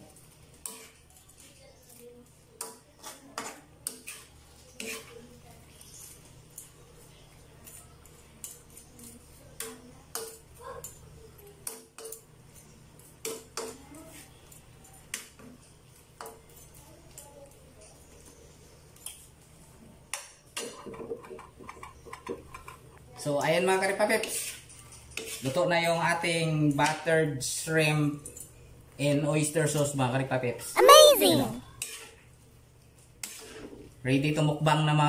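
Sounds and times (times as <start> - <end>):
metal spatula scraping a wok: 0.6 - 1.0, 3.9 - 5.2.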